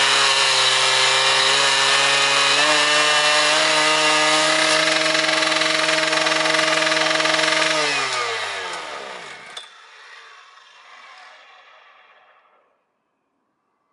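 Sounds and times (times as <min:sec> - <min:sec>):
rail saw engine running: 0:00.0 - 0:09.6.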